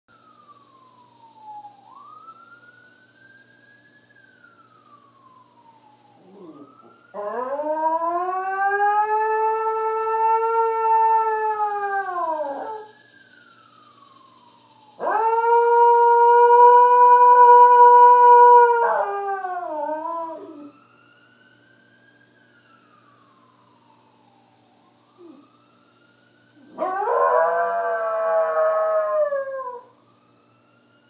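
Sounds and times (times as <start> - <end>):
faint wailing siren: 0.1 - 31.0
dog howling: 26.6 - 29.9.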